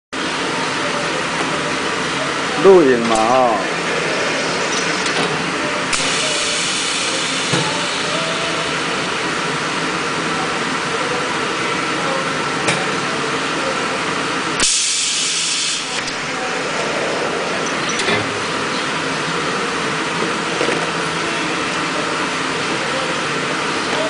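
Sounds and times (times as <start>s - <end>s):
welding machine hissing: 3.8s - 9.2s, 14.6s - 20.4s
loud hiss burst: 4.8s - 8.5s, 14.6s - 20.0s.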